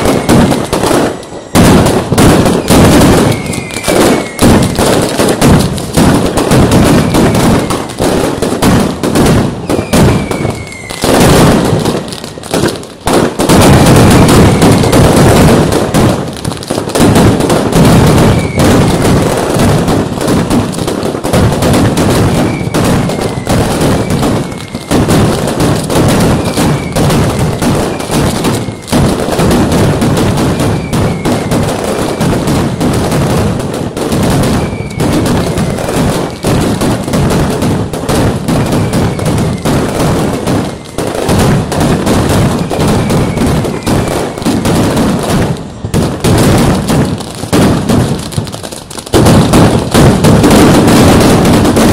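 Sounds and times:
falling whistles: 0.0s - 4.7s, 9.6s - 12.5s, 14.2s - 15.2s, 18.2s - 19.1s, 22.3s - 25.3s, 26.3s - 29.0s, 30.5s - 32.4s, 34.5s - 36.6s, 38.6s - 40.0s, 42.6s - 44.8s
firecrackers banging: 0.0s - 51.9s.

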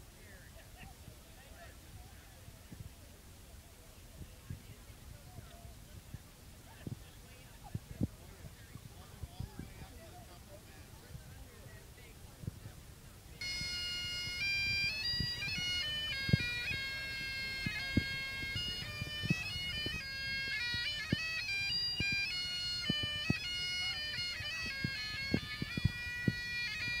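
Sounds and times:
bagpipes playing a tune: 13.4s - 27.0s.

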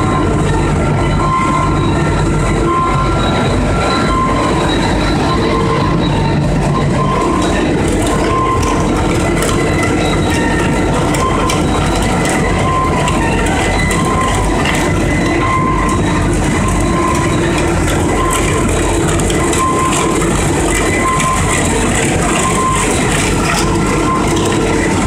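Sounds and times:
short tone: 0.0s - 18.7s
loud steady machine noise: 0.0s - 25.0s.

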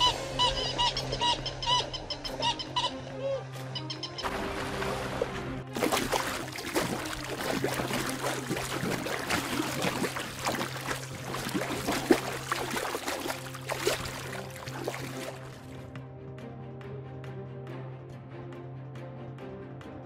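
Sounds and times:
water splashing: 4.2s - 15.9s.

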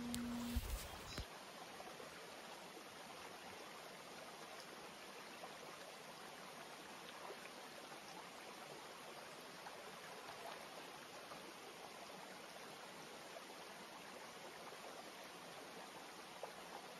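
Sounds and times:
faint steady rushing noise: 0.0s - 1.4s.

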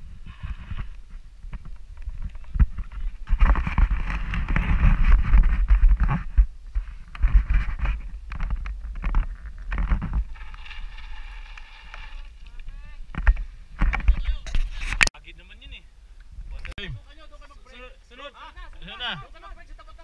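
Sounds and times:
bike tyres crunching on gravel: 0.0s - 14.8s
bike rattling: 0.0s - 15.0s
wind buffeting microphone: 0.0s - 15.1s.

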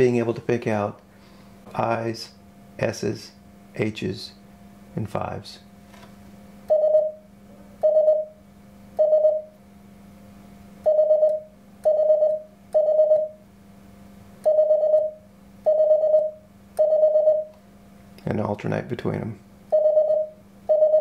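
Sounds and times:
morse code beeps: 6.7s - 7.2s, 7.8s - 8.4s, 9.0s - 9.5s, 10.8s - 13.4s, 14.4s - 17.5s, 19.7s - 21.0s.

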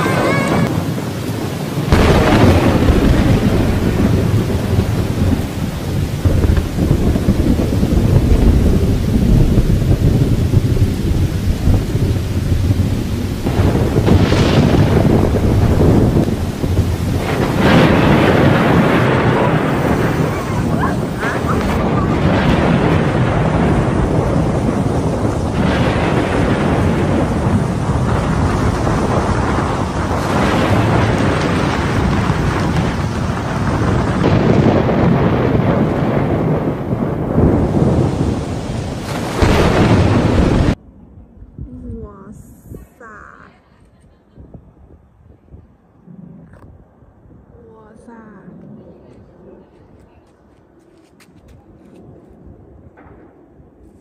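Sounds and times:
heavy rain: 0.0s - 40.8s
thunder crash: 0.0s - 42.1s, 44.4s - 50.2s, 51.4s - 54.0s
strong wind on microphone: 0.0s - 54.0s
thunder rumbling: 0.0s - 54.0s.

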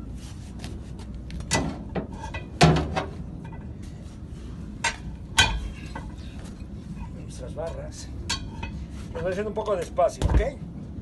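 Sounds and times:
tyre bars clanking on metal: 1.5s - 3.7s, 4.8s - 6.4s.

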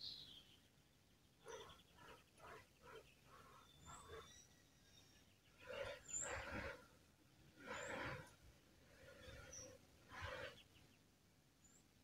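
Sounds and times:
distant birds chirping: 0.0s - 12.0s
breathy husky animal calls: 1.4s - 4.5s.

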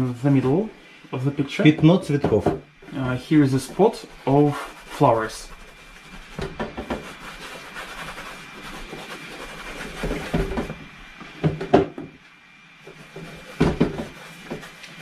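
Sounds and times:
rag rubbing on painting: 2.9s - 10.8s, 12.9s - 15.0s
rag knocking on canvas: 13.6s - 14.6s.

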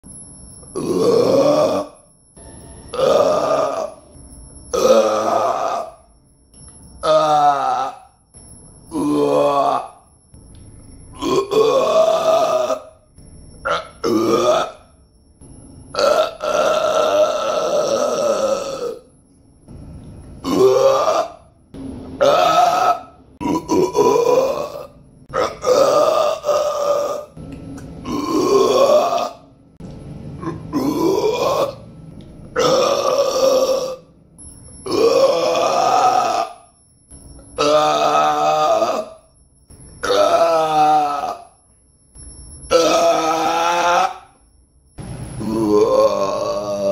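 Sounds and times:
man burping: 0.7s - 2.0s, 2.9s - 4.0s, 11.2s - 12.9s, 13.7s - 14.8s, 16.0s - 19.1s, 22.2s - 27.3s, 28.0s - 29.4s, 30.4s - 31.8s, 32.6s - 34.1s, 45.4s - 46.9s.

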